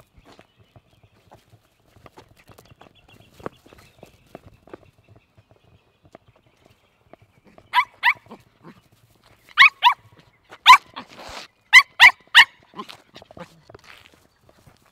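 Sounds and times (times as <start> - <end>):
puppy yapping: 7.7 - 8.4, 9.6 - 10.0, 10.6 - 13.5.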